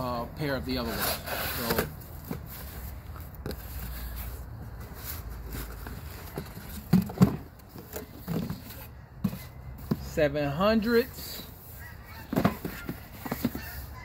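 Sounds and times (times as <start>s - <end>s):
cardboard rubbing and knocking: 12.2s - 13.8s.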